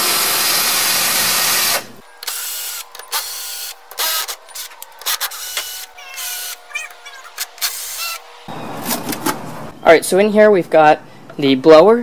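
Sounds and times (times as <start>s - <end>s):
cordless drill whirring: 0.0s - 6.6s, 7.4s - 8.3s.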